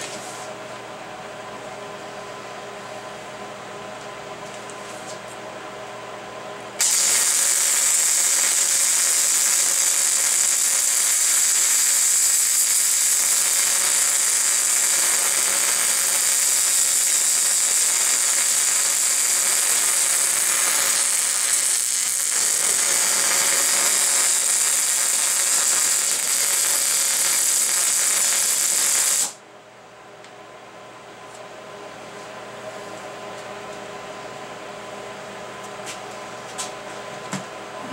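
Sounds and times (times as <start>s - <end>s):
machine hum: 0.0s - 37.9s
welding arc sizzling crackle: 6.8s - 29.4s.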